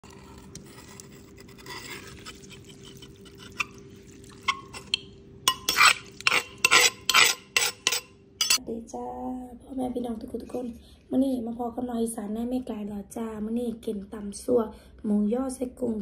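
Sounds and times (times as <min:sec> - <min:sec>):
wet squishes of stirred salad: 0:00.1 - 0:08.6.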